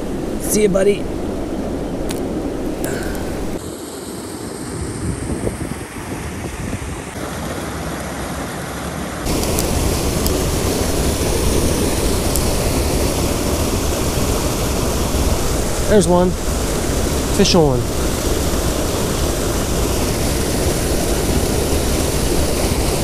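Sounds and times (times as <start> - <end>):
wind on microphone: 0.0 - 7.9, 9.2 - 23.0
water rushing over waterfall: 7.1 - 23.0.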